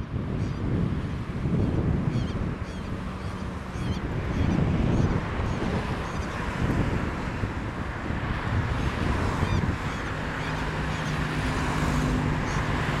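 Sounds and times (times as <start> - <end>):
road traffic hum: 0.0 - 13.0
wind rumbling on microphone: 0.0 - 13.0.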